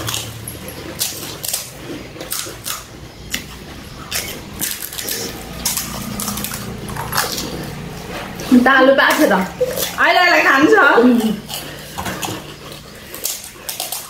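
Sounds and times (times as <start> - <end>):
crisp shells cracking: 0.0 - 8.0, 11.4 - 14.0
crunching in the mouth: 0.0 - 8.5, 11.2 - 14.0.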